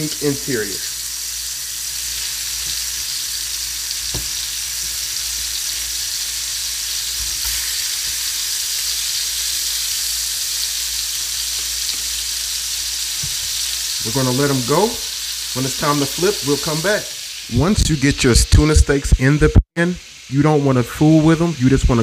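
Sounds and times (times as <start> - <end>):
steaks laid into pan with tongs: 0.0 - 17.4
fish steaks sizzling in a frying pan: 0.0 - 22.0.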